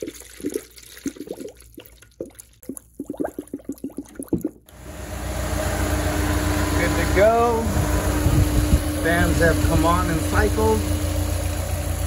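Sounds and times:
coolant glugging from jug: 0.0s - 4.7s
car engine running: 4.7s - 12.0s.

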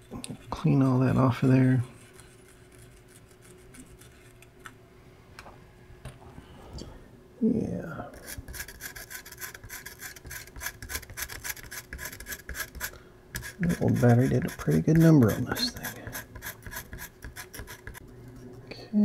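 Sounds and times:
pen scratching circuit board: 8.2s - 18.0s.

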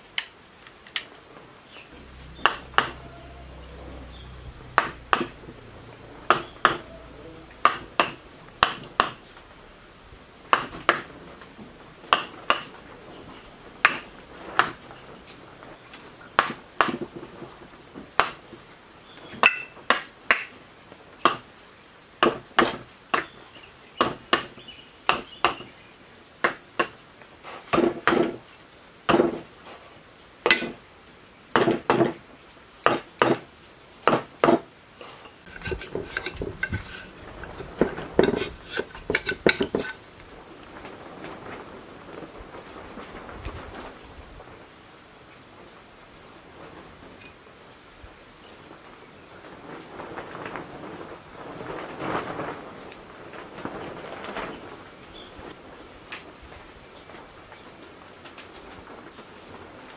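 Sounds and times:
wooden dowel tapping metal: 4.7s - 5.5s, 6.3s - 6.9s, 7.5s - 9.2s, 35.5s - 40.0s.

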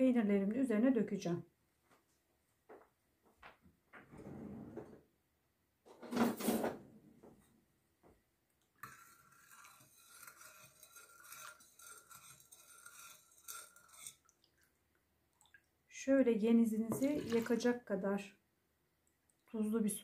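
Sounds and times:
metal ladle scraping glass bowl: 8.8s - 14.5s, 16.9s - 17.7s.

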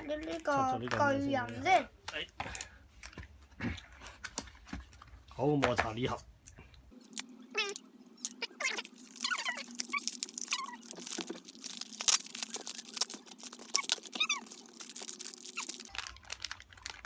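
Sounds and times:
packaging crinkling and rustling: 8.2s - 17.0s.

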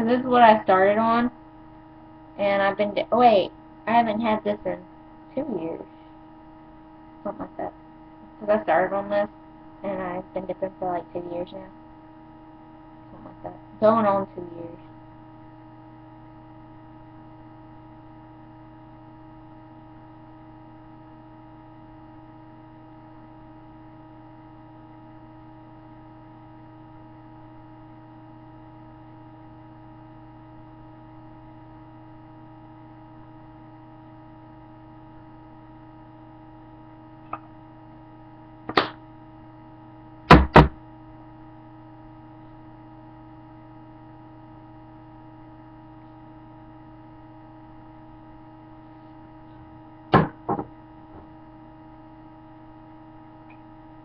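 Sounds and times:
electrical hum: 0.0s - 54.0s
knocks: 40.3s - 40.8s, 50.1s - 50.7s.

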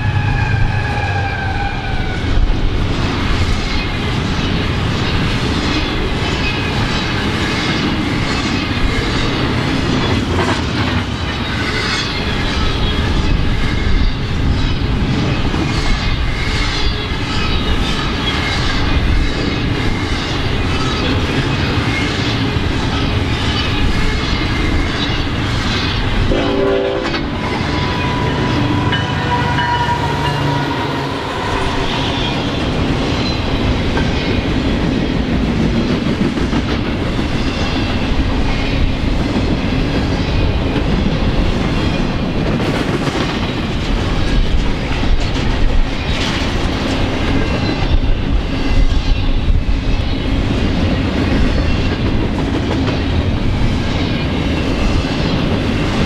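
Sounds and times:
train rumbling past: 0.0s - 56.0s
locomotive horn: 26.3s - 27.4s, 28.0s - 31.8s.

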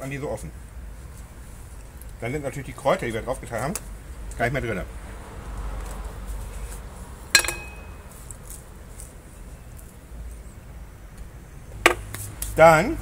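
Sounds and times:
tableware clinking: 7.4s - 8.0s.

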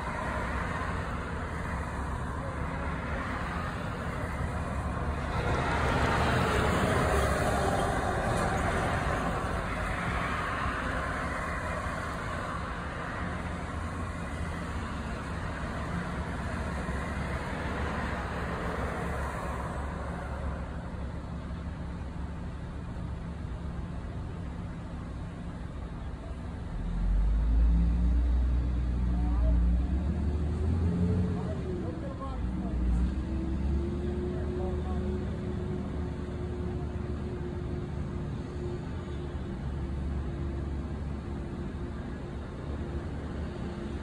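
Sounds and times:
vehicle passing: 0.0s - 14.8s.

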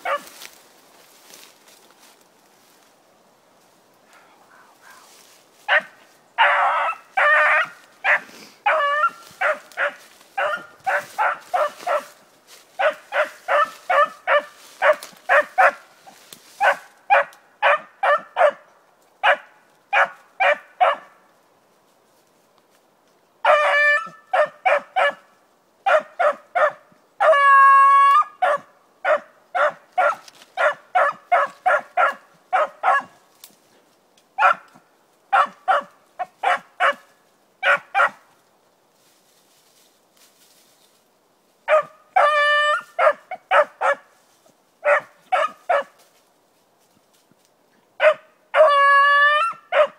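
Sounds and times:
dog barking: 5.7s - 12.2s, 12.8s - 15.8s, 16.6s - 18.6s, 19.2s - 21.2s, 23.5s - 27.4s, 28.4s - 33.2s, 34.4s - 34.7s, 35.3s - 38.2s, 41.7s - 44.1s, 44.8s - 46.0s, 48.0s - 49.9s.

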